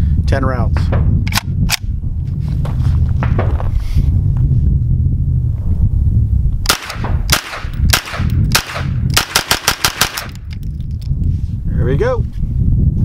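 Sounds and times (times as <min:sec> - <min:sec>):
pistol shots: 0:06.7 - 0:10.4.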